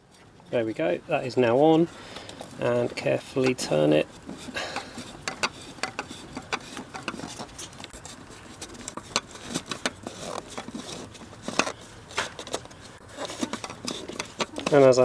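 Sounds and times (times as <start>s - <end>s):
plastic cap clicking and scraping: 3.4s - 15.0s.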